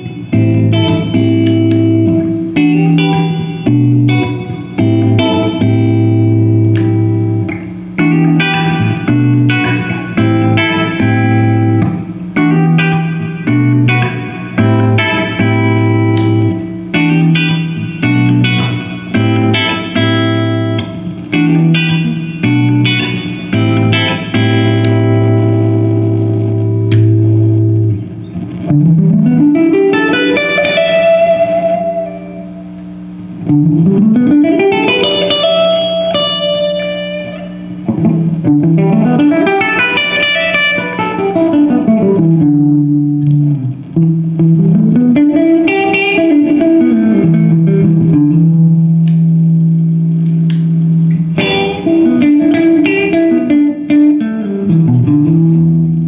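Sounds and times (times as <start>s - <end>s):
electric guitar riff: 0.0s - 56.0s
guitar note sliding up: 0.0s - 56.0s.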